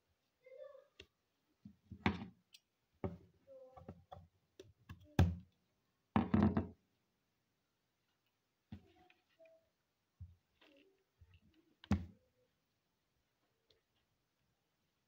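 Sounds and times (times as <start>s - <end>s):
knocks on wooden table: 6.2s - 6.7s.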